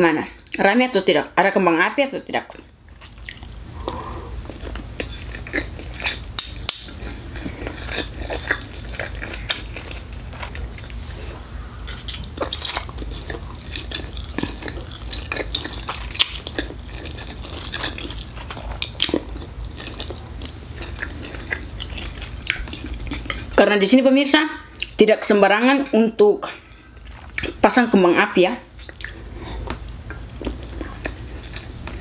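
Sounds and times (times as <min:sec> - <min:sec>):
air conditioner hum: 0:00.0 - 0:32.0
eating sounds: 0:02.5 - 0:23.6, 0:28.7 - 0:32.0.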